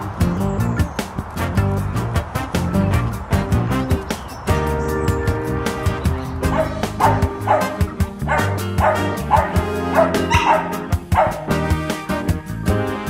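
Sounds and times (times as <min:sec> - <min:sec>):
background music with steady beat: 0:00.0 - 0:13.0
dog barking: 0:06.4 - 0:11.5.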